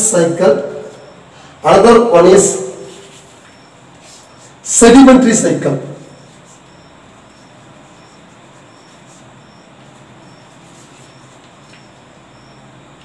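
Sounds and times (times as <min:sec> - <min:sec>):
room hiss and low hum: 0:00.0 - 0:13.0
chalk writing on blackboard: 0:02.8 - 0:04.6, 0:06.2 - 0:12.0.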